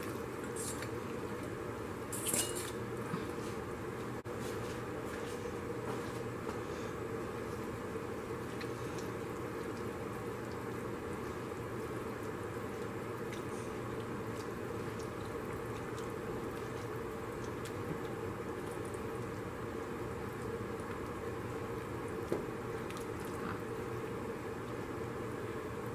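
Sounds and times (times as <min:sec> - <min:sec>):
broth simmering hiss: 0:06.6 - 0:25.9.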